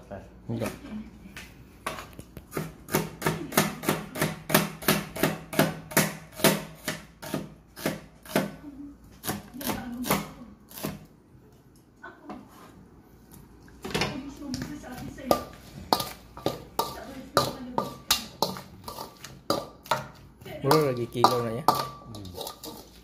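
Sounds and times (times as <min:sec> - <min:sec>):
cleaver chopping on plastic board: 0:02.5 - 0:08.5.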